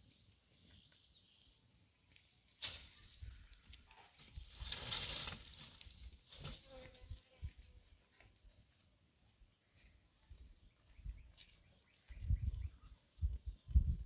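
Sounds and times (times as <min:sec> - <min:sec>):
dry brushwood rustling and crackling: 0:00.2 - 0:09.0.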